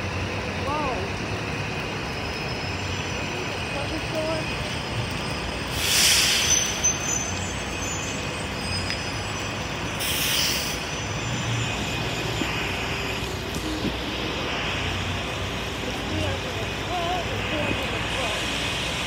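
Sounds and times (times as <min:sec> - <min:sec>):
traffic on wet road: 0:00.0 - 0:19.0
short hisses: 0:05.8 - 0:06.8, 0:10.0 - 0:10.8.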